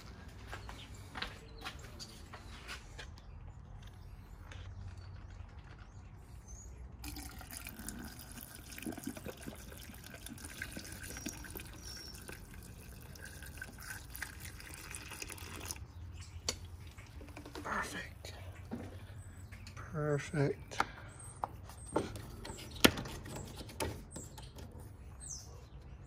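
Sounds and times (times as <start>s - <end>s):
fluid pouring from a jug: 7.0s - 15.9s.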